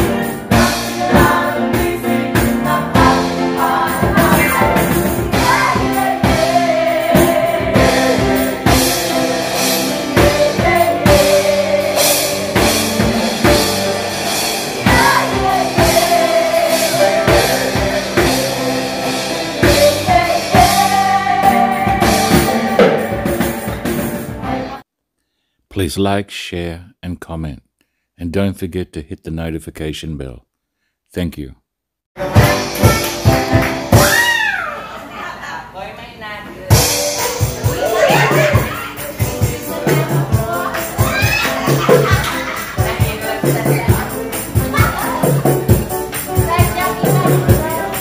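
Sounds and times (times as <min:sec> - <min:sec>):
group singing: 0:00.0 - 0:24.8, 0:37.2 - 0:45.7
steady drumbeat: 0:00.0 - 0:24.8, 0:32.2 - 0:34.3, 0:36.7 - 0:48.0.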